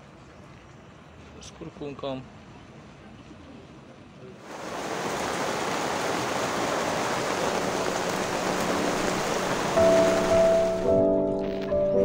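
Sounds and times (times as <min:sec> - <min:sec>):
heavy rain downpour hissing: 0:04.4 - 0:10.9.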